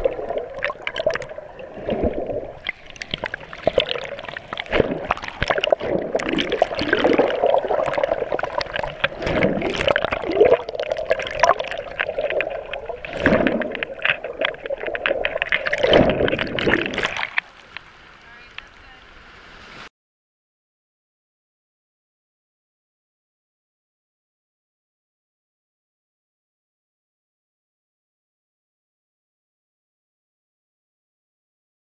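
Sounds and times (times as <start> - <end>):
underwater churning and gurgling: 0.0 - 18.1
small underwater clicks and knocks: 0.0 - 18.8.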